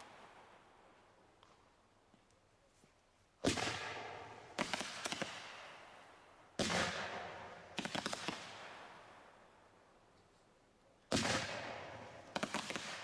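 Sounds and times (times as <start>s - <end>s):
small sharp firework pops: 1.3s - 2.4s, 3.4s - 5.7s, 6.6s - 8.8s, 11.1s - 13.0s.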